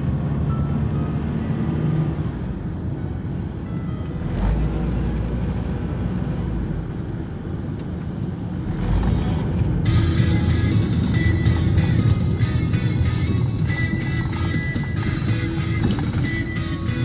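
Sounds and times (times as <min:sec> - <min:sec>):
car cabin road rumble: 0:00.0 - 0:17.0
music: 0:09.9 - 0:17.0.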